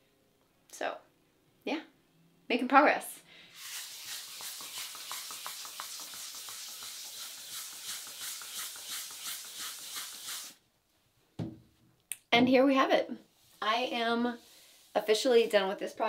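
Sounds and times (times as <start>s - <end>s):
hand rubbing a surface: 3.5s - 10.6s.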